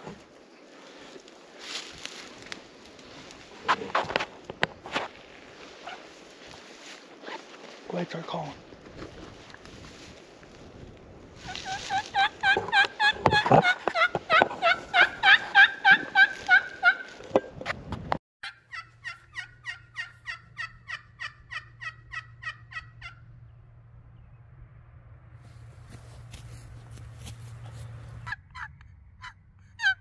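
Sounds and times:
turkey call hen yelps: 11.4 - 17.1, 18.4 - 23.2, 28.2 - 30.0.

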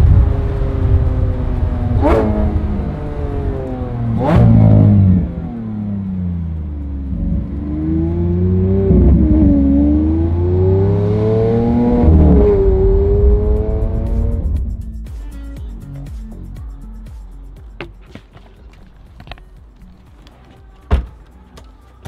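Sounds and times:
car engine revving through gears: 0.0 - 14.8.

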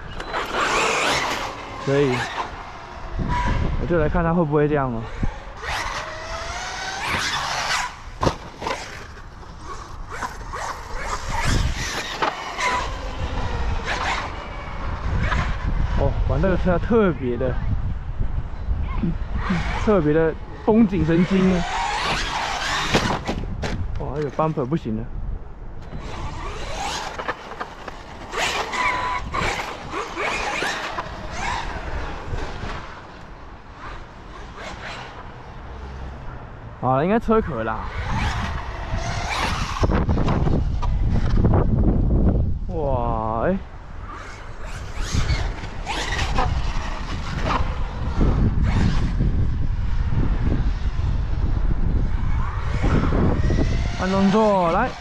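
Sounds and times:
electric motor whining: 5.2 - 15.8, 19.0 - 24.0, 25.8 - 35.3, 37.8 - 42.2, 44.0 - 55.0.

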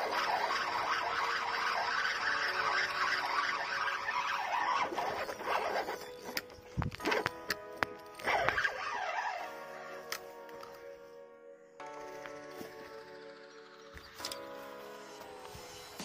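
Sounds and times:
fishing reel whirring: 0.0 - 7.3, 8.1 - 10.1
hand rubbing: 0.0 - 7.4
sharp clicks: 14.0 - 14.5.

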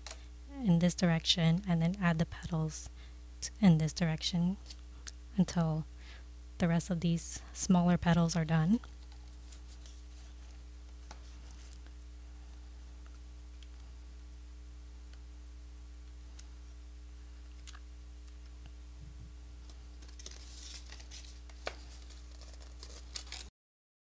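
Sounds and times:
low electrical hum: 0.0 - 23.5
paper petals being handled: 8.9 - 11.9, 19.6 - 23.5
paper rustling and crinkling: 8.9 - 11.9, 19.6 - 23.5.

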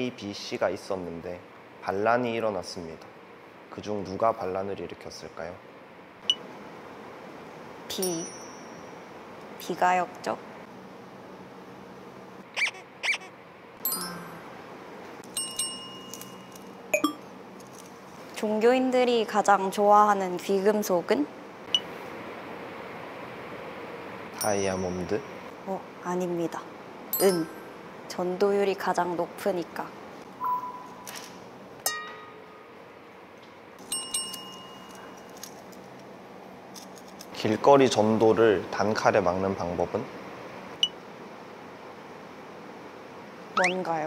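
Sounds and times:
bell-like dings: 8.0 - 9.0, 13.9 - 14.4, 15.3 - 17.2, 27.2 - 27.7, 30.4 - 31.0, 33.8 - 35.2
high glittering chime: 13.9 - 14.5
pitch-bending blips: 17.0 - 17.2, 43.6 - 43.9.

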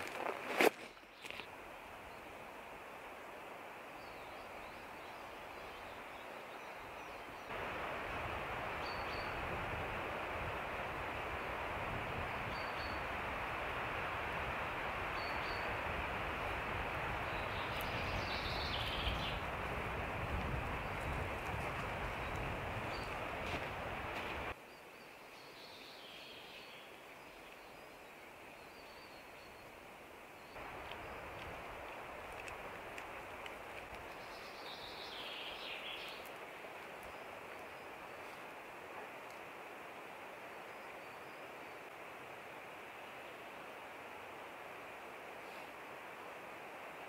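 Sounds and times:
steady soft forest hiss: 0.0 - 47.0
steady rushing outdoor noise: 7.5 - 24.6, 30.6 - 40.6
distant bird calls: 17.2 - 19.8.

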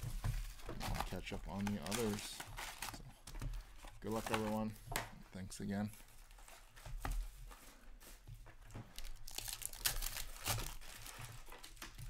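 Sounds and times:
foil wrapper crinkling and tearing: 0.6 - 3.0, 8.9 - 12.0.

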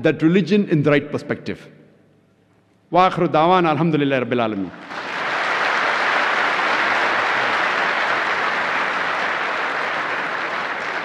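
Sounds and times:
large audience applauding: 4.7 - 11.0.

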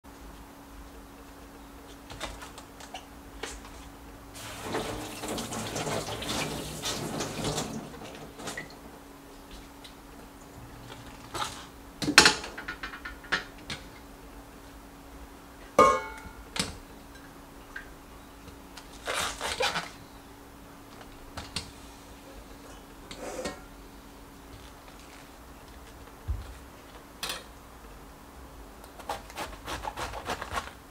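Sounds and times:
steel bowls clinking: 15.8 - 16.4.

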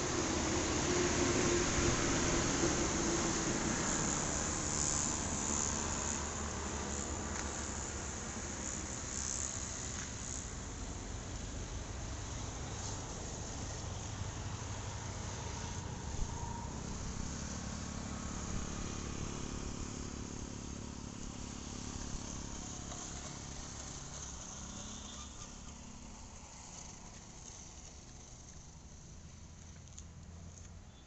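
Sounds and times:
high-pitched insect drone: 1.7 - 11.0.

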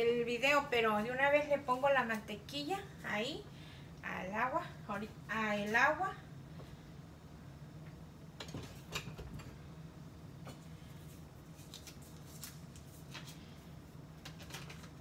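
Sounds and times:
steady low hum: 0.0 - 15.0
kitchen items clicking and rustling: 14.2 - 15.0.

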